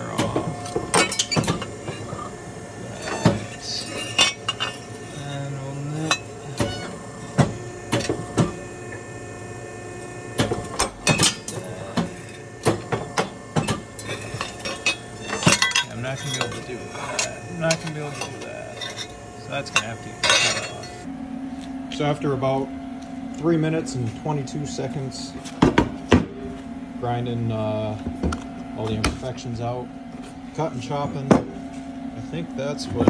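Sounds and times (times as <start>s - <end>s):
motor humming: 0.0s - 31.0s.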